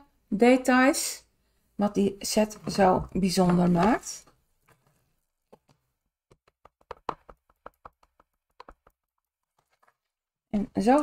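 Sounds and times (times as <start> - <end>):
acrylic block tapping and clicking: 5.5 - 9.9.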